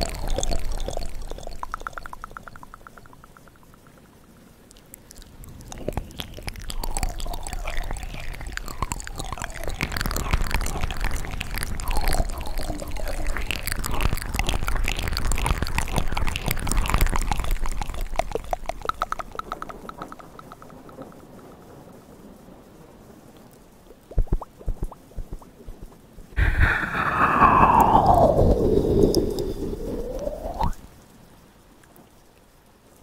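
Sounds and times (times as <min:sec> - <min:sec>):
wet mouth clicks and smacks: 0:00.0 - 0:04.0, 0:04.7 - 0:21.1, 0:24.1 - 0:30.8.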